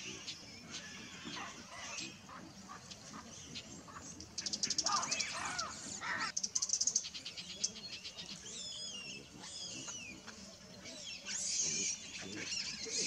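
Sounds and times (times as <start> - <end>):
baboons chattering: 8.9 - 13.0.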